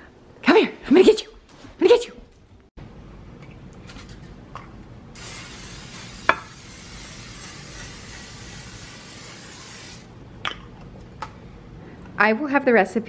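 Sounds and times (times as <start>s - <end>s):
aerosol spray hissing: 5.2s - 10.1s.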